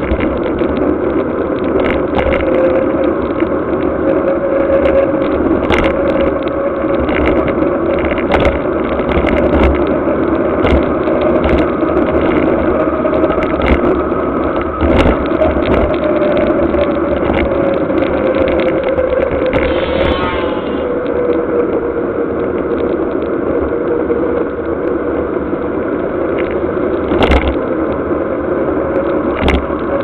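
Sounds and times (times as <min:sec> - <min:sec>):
camera rattling over bumps: 0:00.0 - 0:02.5, 0:14.5 - 0:21.1
bike tyres humming on wet asphalt: 0:00.0 - 0:30.0
wind on microphone: 0:00.0 - 0:30.0.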